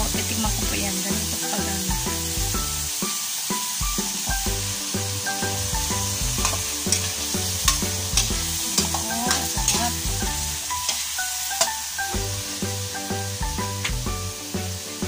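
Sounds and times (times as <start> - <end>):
food sizzling: 0.0 - 15.0
light background music: 0.0 - 15.0
metal spatula scraping wok: 5.3 - 12.2.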